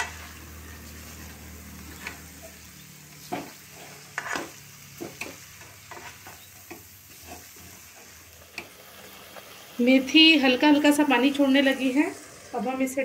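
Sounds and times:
metal spatula scraping a pan: 0.0 - 8.2
faint frying sizzle: 0.0 - 13.0.

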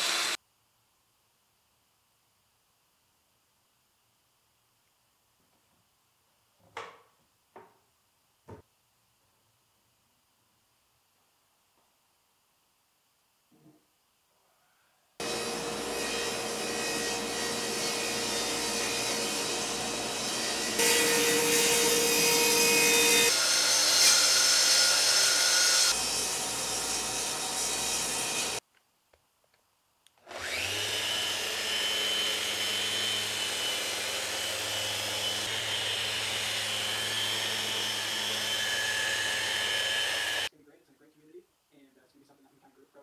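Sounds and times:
sander whining: 0.0 - 0.4, 30.2 - 40.5
table saw running: 0.0 - 0.4, 15.2 - 28.6, 30.3 - 40.5
saw blade cutting wood: 15.2 - 28.6, 30.3 - 40.5.

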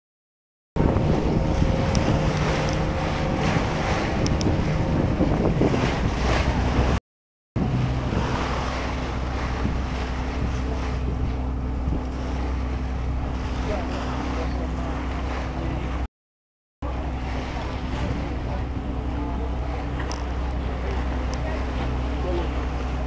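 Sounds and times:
boat engine running: 0.8 - 7.0, 7.6 - 16.1, 16.8 - 23.0
water rushing past hull: 0.8 - 7.0, 7.6 - 16.1, 16.8 - 23.0
wind buffeting microphone: 0.8 - 7.0, 7.6 - 16.0.

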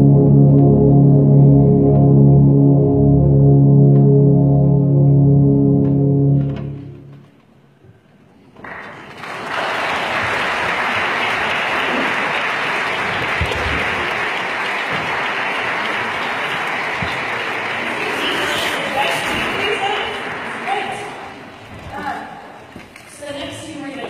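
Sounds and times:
tubas holding low chord: 0.0 - 7.4
applause: 8.6 - 21.4.

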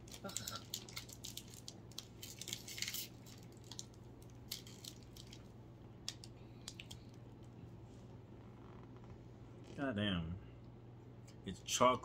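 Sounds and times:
plastic wrapper crinkling: 0.0 - 7.2
low steady hum: 0.0 - 12.0.

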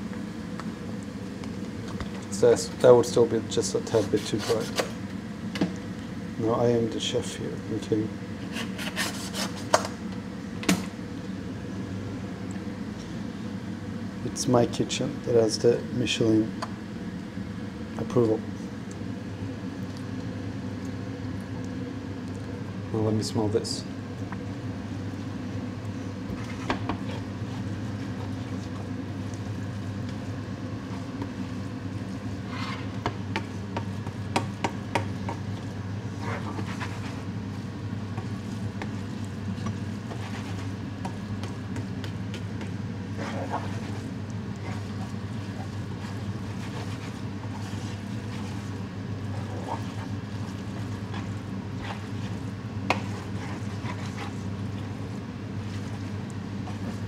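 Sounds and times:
steady low hum: 0.0 - 57.0
utensil scraping a pan: 8.4 - 9.8.

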